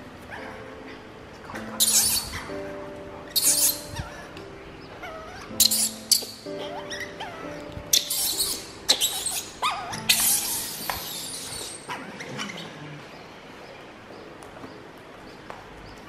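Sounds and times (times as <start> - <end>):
baby monkey squealing: 1.7 - 4.3, 5.0 - 12.8.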